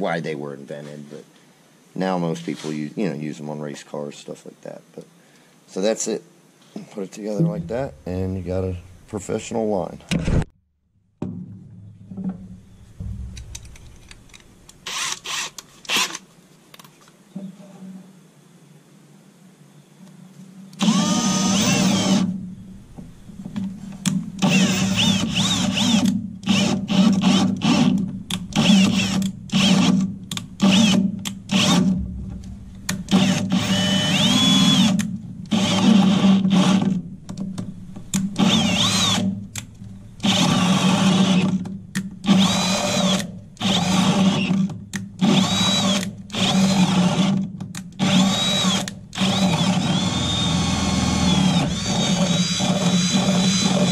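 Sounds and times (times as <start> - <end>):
cordless drill boring wood: 14.8 - 16.2, 20.8 - 22.4, 24.4 - 32.0, 33.1 - 37.0, 38.4 - 39.3, 40.2 - 41.6, 42.2 - 47.4, 48.0 - 53.9.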